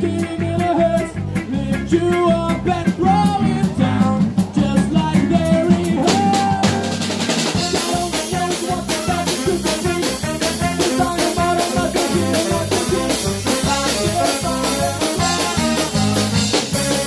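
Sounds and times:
drum kit beat: 0.0s - 17.0s
saxophones and trumpet playing: 6.1s - 17.0s.

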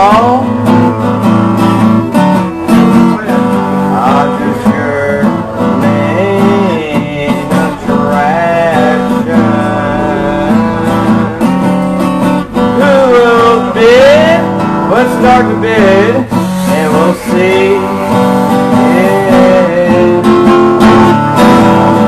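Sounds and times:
acoustic guitar strumming: 0.0s - 22.0s
man singing: 0.0s - 22.0s.

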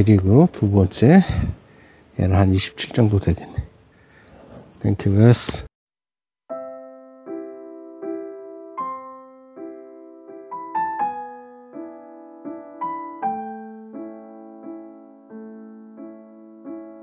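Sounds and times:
slow keyboard chords: 6.5s - 17.0s.

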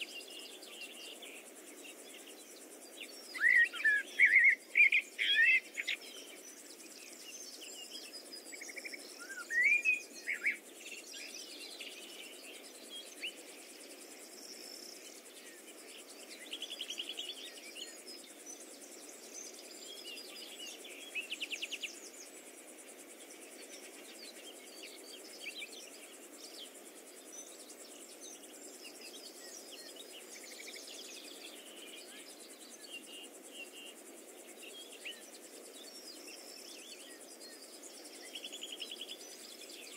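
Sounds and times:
faint steady hiss: 0.0s - 39.9s.

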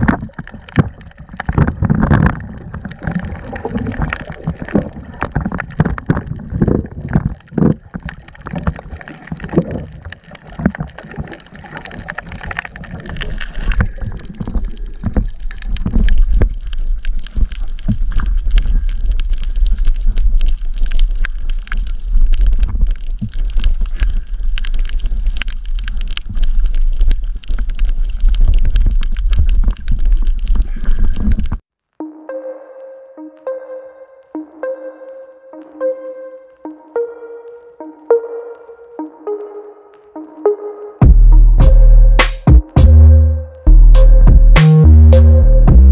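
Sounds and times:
underwater water sloshing: 0.0s - 31.6s
low rumble: 41.0s - 45.9s.

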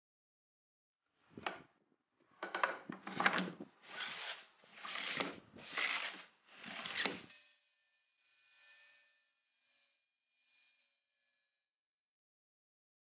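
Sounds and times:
wood scraping on metal: 2.9s - 7.4s.

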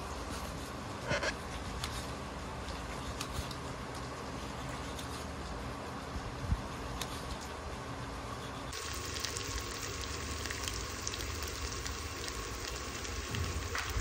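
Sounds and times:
onions sizzling in oil: 8.7s - 14.0s.

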